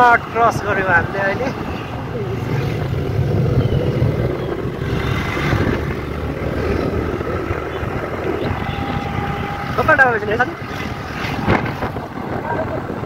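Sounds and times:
motorbike engine running: 0.0s - 13.0s
road and wind noise: 0.0s - 13.0s.

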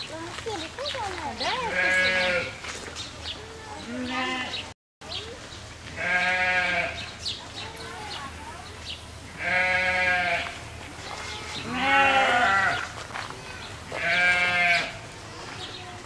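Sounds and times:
sheep or goat bleating: 1.6s - 2.6s, 3.9s - 4.6s, 6.0s - 7.0s, 9.4s - 13.0s, 13.9s - 15.0s.

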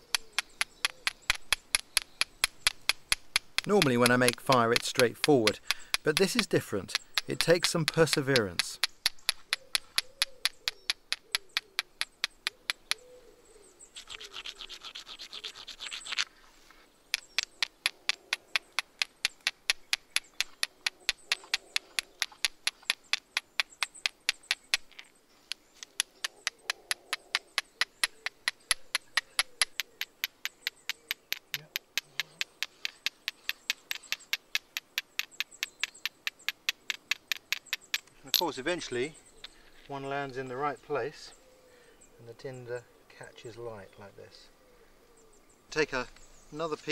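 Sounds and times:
flint striking pyrites: 0.0s - 13.1s, 17.1s - 39.6s.

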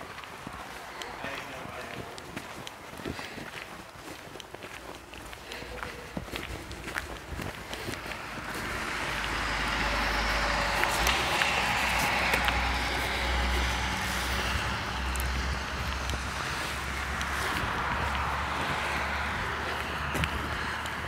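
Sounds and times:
vehicle passing by: 5.4s - 21.0s
low rumble: 6.7s - 21.0s.

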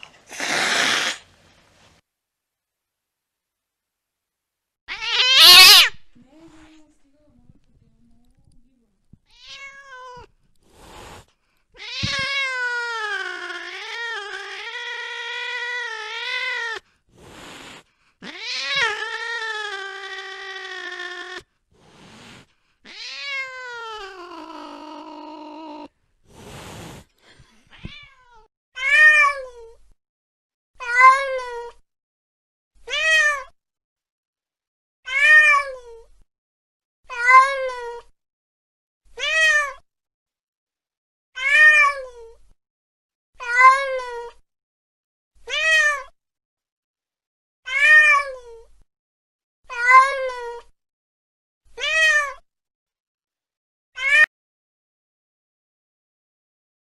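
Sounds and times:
cat meowing: 0.3s - 1.2s, 4.9s - 6.1s, 9.3s - 10.3s, 11.8s - 16.8s, 18.2s - 21.5s, 22.9s - 25.9s, 27.7s - 29.7s, 30.8s - 31.7s, 32.9s - 33.5s, 35.1s - 36.0s, 37.1s - 38.1s, 39.2s - 39.8s, 41.4s - 42.1s, 45.5s - 46.1s, 47.7s - 48.6s, 49.7s - 50.7s, 51.8s - 52.4s, 54.0s - 54.3s.

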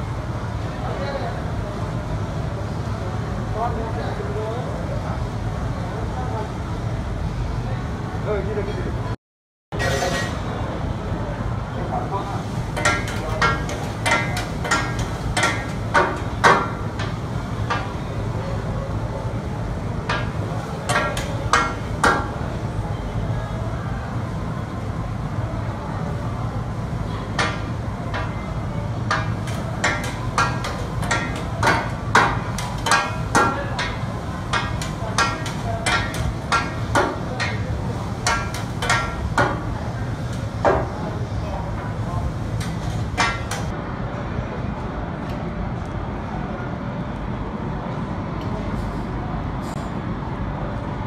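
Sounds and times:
metal spatulas clanking on griddle: 9.8s - 10.4s, 12.8s - 17.1s, 20.1s - 22.3s, 29.1s - 39.6s, 42.6s - 43.7s
metal spatulas clinking on griddle: 29.1s - 37.6s.

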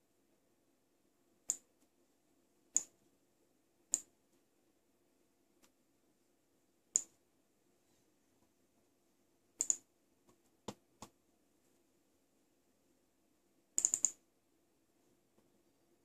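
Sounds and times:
faint steady hum: 0.0s - 16.0s
mouse button clicks: 13.8s - 14.2s.

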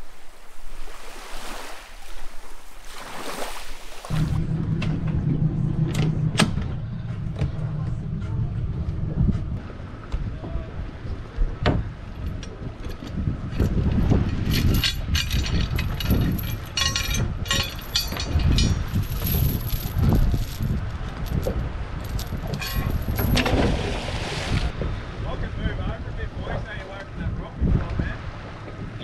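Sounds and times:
wind buffeting microphone: 4.0s - 29.0s
anchor chain clinking and rattling: 12.2s - 23.8s.

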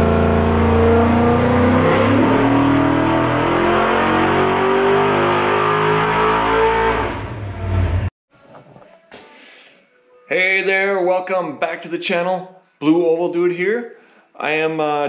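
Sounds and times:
engine revving on dyno: 0.0s - 8.1s.

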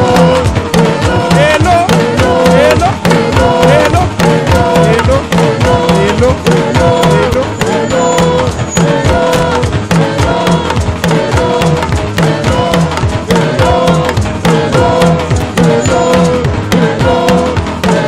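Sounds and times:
drums and hand percussion: 0.0s - 18.0s
live praise music: 0.0s - 18.0s.

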